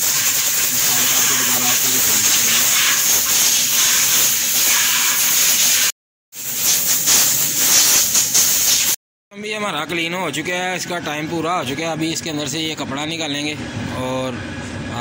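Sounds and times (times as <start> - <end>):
pressurised gas hissing: 0.0 - 9.0.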